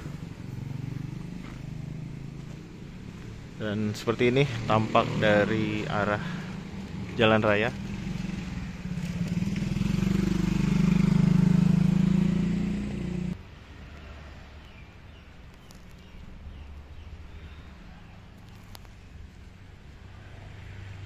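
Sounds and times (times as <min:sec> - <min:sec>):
vehicle engine passing by: 0:00.0 - 0:14.5, 0:20.0 - 0:21.0.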